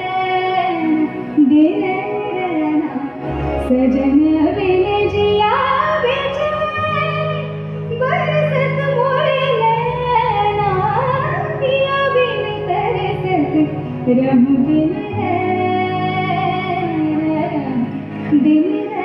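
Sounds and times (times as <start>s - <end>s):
woman singing into a microphone: 0.0s - 19.0s.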